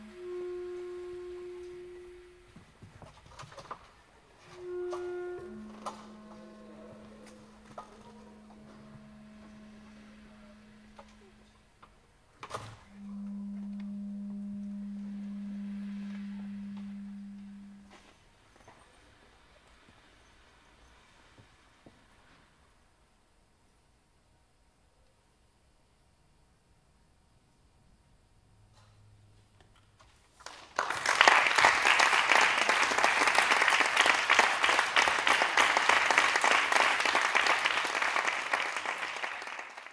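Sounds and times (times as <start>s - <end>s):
reed instrument long low note: 0.0s - 3.8s, 4.4s - 12.0s, 12.7s - 18.2s
audience applauding: 30.4s - 39.9s.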